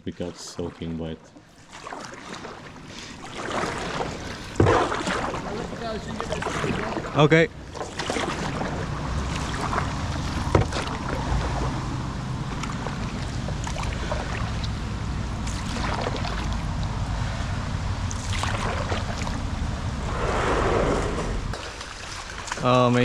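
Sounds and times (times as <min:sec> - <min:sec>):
paddling splashes: 0:00.0 - 0:23.0
large splash: 0:01.7 - 0:14.8, 0:15.4 - 0:16.8, 0:18.1 - 0:23.0
heavy rain on water: 0:03.1 - 0:23.0
wind buffeting microphone: 0:08.6 - 0:23.0.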